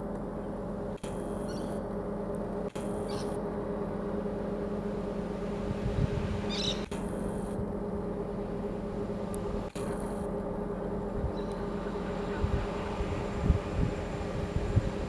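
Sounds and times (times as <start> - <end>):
engine drone: 0.0 - 15.0
high bird call: 6.5 - 6.9.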